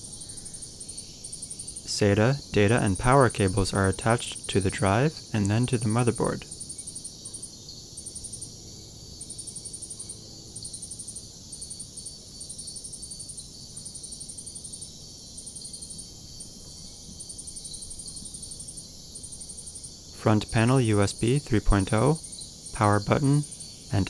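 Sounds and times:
insect chirping trills: 0.0s - 24.0s
faint low hum: 1.8s - 6.6s, 20.2s - 24.0s.

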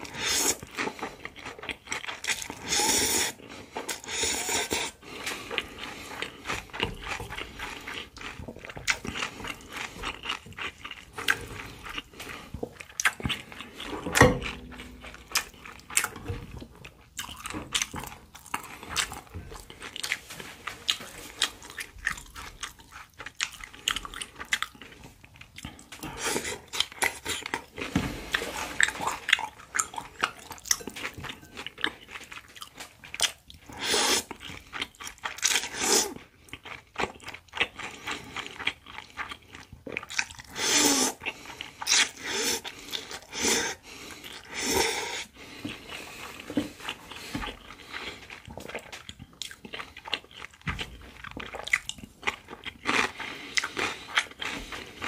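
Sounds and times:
slurping noodles: 0.0s - 1.2s, 2.2s - 10.0s, 33.7s - 34.4s, 35.5s - 36.2s, 40.4s - 48.4s
chewing and crunching food: 0.0s - 55.0s.

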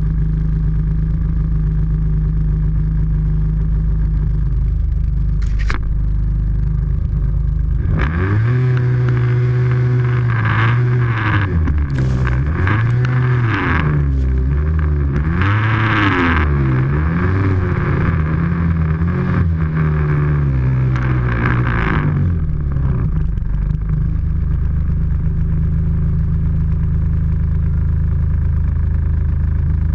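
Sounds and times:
snowmobile engine revving: 7.9s - 20.2s
snow spraying: 11.9s - 13.0s.

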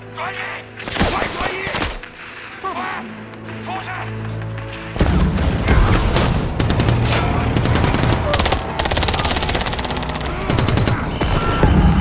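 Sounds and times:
rapid automatic gunfire: 6.4s - 11.6s.

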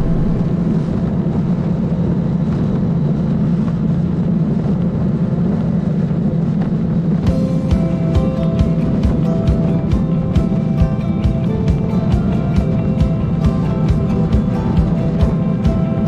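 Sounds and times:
music: 0.0s - 1.8s, 7.2s - 16.0s
road rumble: 0.0s - 16.0s
wind noise: 0.0s - 16.0s.

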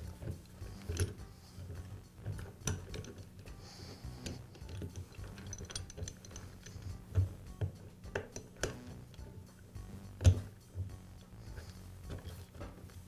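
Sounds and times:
light metal clicks and knocks: 0.0s - 3.6s, 4.2s - 9.3s.

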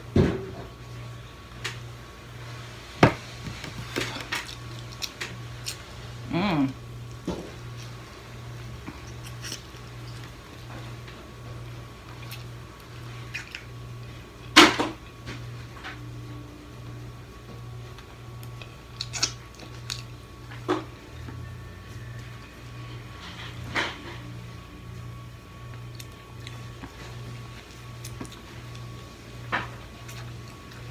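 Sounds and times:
crab shell cracking: 3.9s - 5.9s, 18.4s - 20.2s.

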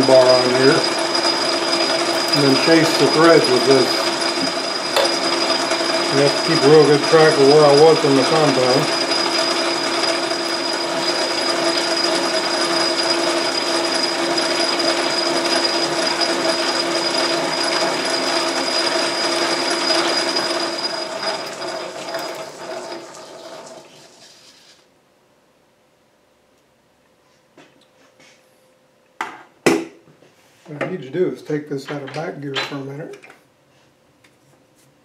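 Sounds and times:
lathe gear whine: 0.0s - 24.4s.

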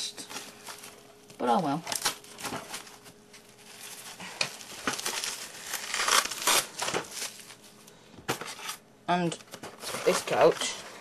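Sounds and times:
packaging rustling and crinkling: 0.2s - 11.0s.

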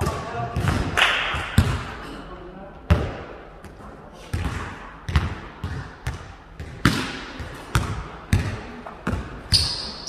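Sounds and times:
basketball bouncing on gym floor: 0.0s - 2.0s, 2.9s - 3.3s, 4.3s - 9.9s
sneaker squeak: 9.1s - 10.0s.

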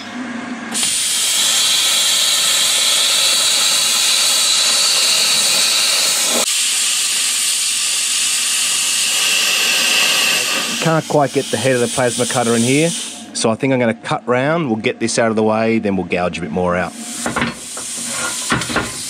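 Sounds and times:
plasma cutter hissing: 0.7s - 13.3s, 16.9s - 19.0s.

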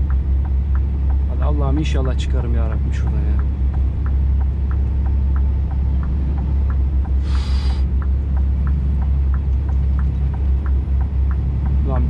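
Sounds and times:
hazard light flasher ticking: 0.0s - 12.0s
truck diesel engine droning: 0.0s - 12.0s
brief hiss: 7.2s - 7.8s.

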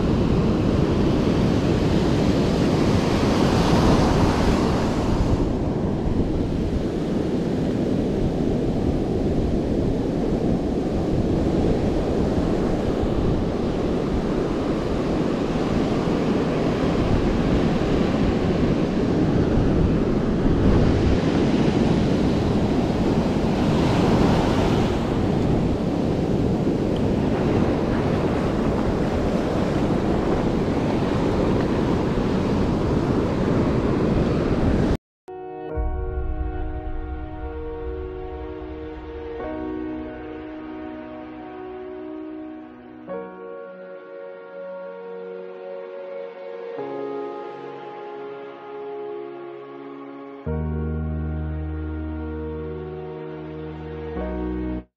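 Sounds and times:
ocean surf breaking on beach: 0.0s - 35.0s
wind buffeting microphone: 0.0s - 35.0s.

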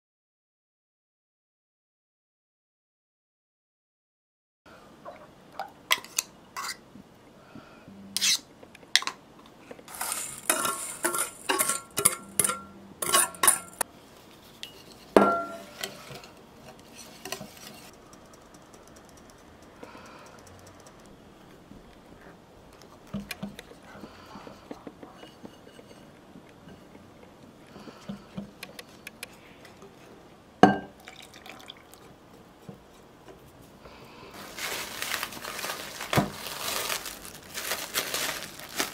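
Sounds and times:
wire whisk scraping glass bowl: 9.9s - 13.8s.

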